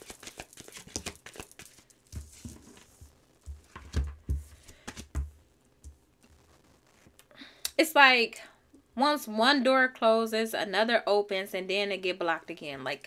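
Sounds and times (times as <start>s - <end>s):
cards clicking and flicking: 0.0s - 1.8s.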